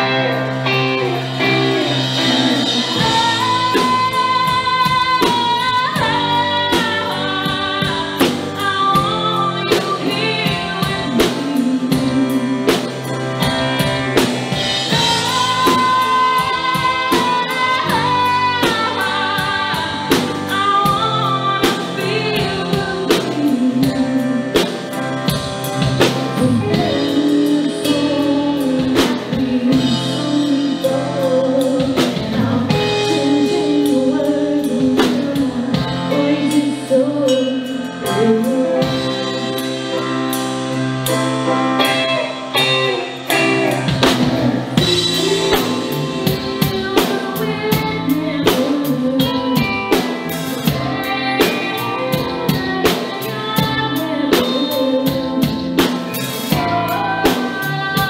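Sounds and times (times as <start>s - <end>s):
woman singing: 0.0s - 40.4s, 41.8s - 58.0s
live band playing a ballad: 0.0s - 58.0s.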